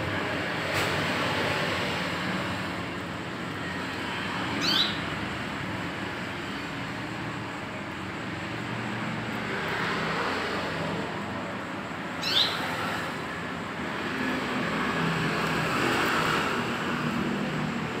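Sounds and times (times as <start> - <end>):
road traffic noise: 0.0 - 18.0
bird chirp: 4.4 - 5.2, 12.2 - 12.9.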